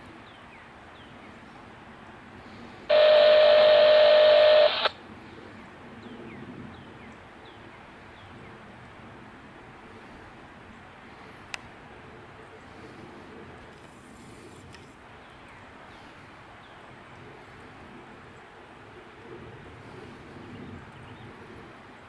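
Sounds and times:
faint high chirps: 2.9s - 4.9s
loud electronic tone: 2.9s - 4.9s.

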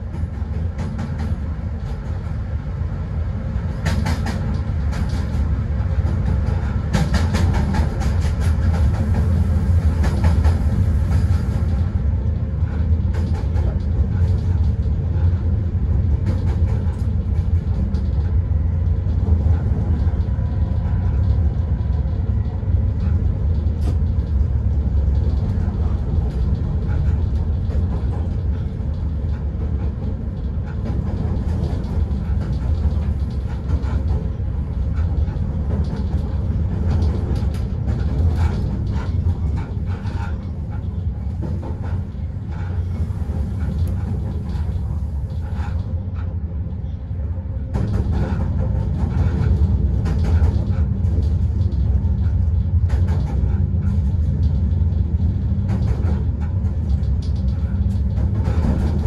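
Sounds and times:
locomotive rumble: 0.0s - 59.0s.

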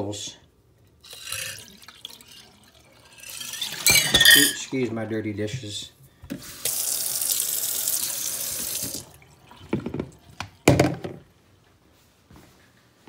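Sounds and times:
dishes clinking: 3.5s - 4.8s
tap running into sink: 8.5s - 11.2s.

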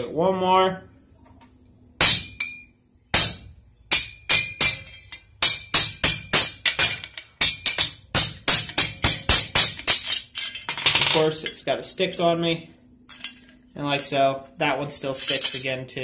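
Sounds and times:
hammer striking steel punch: 2.0s - 10.5s.

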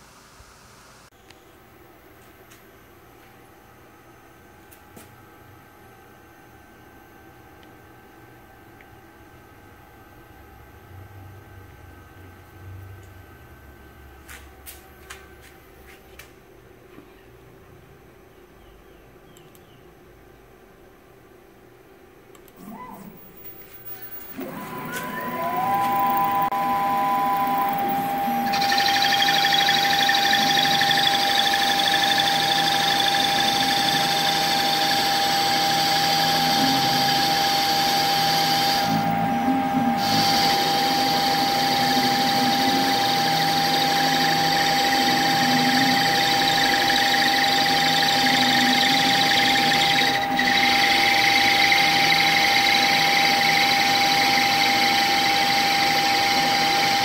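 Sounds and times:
lathe spindle high whine: 22.6s - 57.0s.

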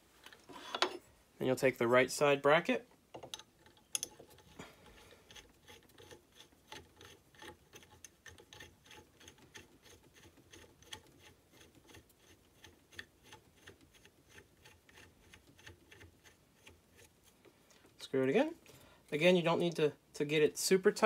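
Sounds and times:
allen key clicking on screw: 3.1s - 4.5s.

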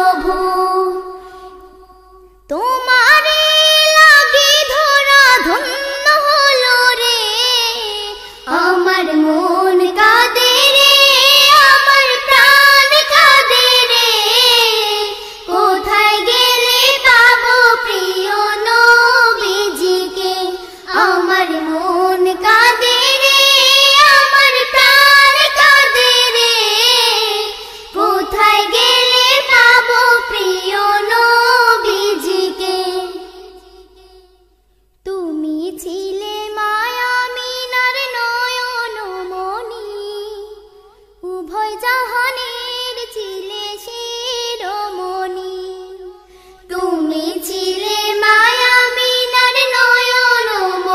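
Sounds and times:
high solo voice singing: 0.0s - 1.3s.

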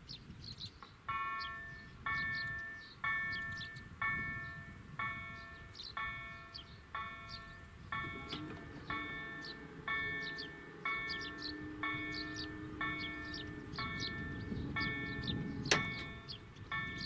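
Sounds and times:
level-crossing bell ringing: 1.1s - 17.0s
low motor hum: 7.2s - 17.0s.

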